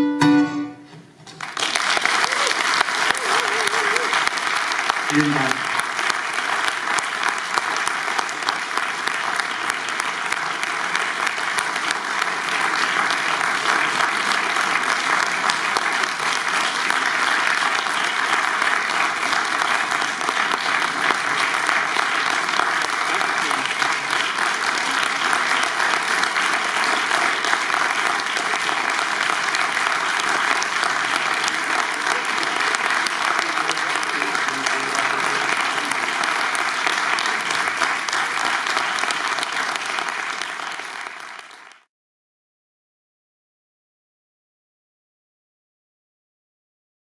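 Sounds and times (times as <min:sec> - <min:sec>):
audience applauding: 0:01.2 - 0:41.9.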